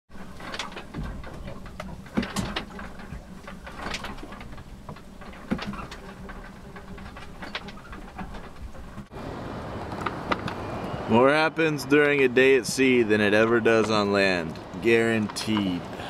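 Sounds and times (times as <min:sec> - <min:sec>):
boat cabin creaks and knocks: 0:00.1 - 0:09.2, 0:12.0 - 0:15.8.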